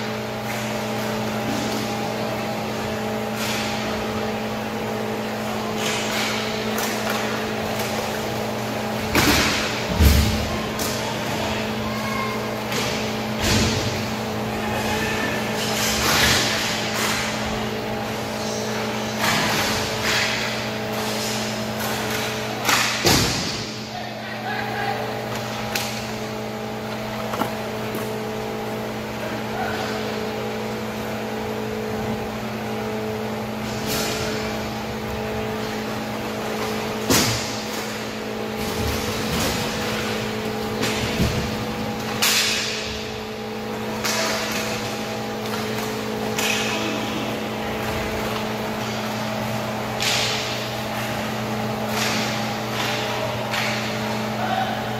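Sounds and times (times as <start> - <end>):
steady hum: 0.0 - 54.9
hockey sticks and puck hitting boards: 5.2 - 11.6, 12.6 - 23.9, 25.1 - 28.5, 35.4 - 54.5.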